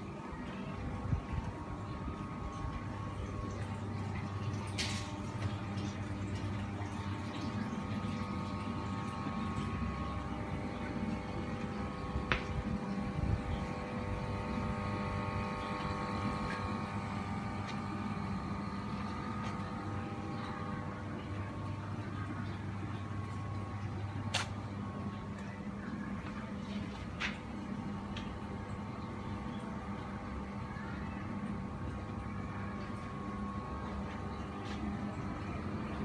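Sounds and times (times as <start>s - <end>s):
machinery humming with held tones: 0.0s - 36.0s.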